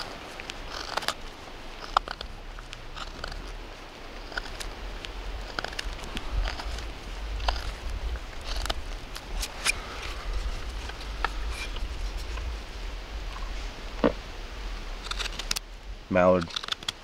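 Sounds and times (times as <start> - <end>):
knife scraping wood: 0.0 - 3.5, 4.2 - 4.7, 5.4 - 12.5
low steady rumble: 0.0 - 16.2.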